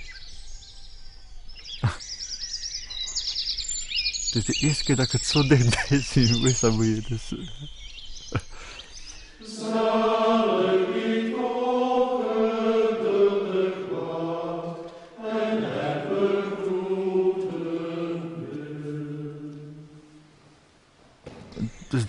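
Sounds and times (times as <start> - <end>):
men chanting together: 9.4 - 19.3.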